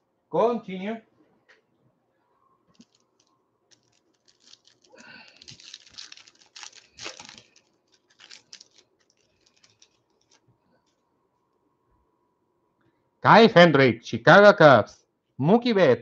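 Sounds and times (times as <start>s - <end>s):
foil wrapper tearing and crinkling: 2.8s - 10.4s.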